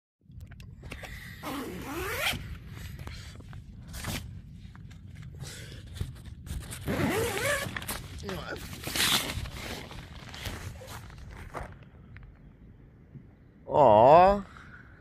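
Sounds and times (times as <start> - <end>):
zipper being pulled: 1.4 - 2.5, 6.7 - 8.0.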